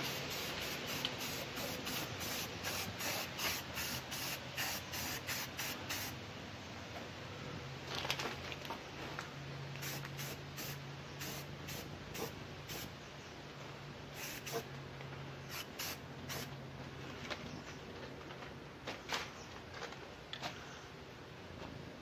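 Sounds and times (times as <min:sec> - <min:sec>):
spray paint can spraying: 0:00.0 - 0:06.2, 0:09.8 - 0:12.9, 0:14.2 - 0:14.7, 0:15.5 - 0:16.5.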